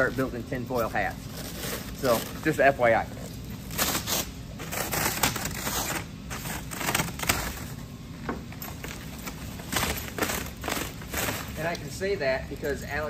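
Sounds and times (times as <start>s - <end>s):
plastic wrap and foil crinkling: 0.0s - 7.8s, 8.8s - 12.8s.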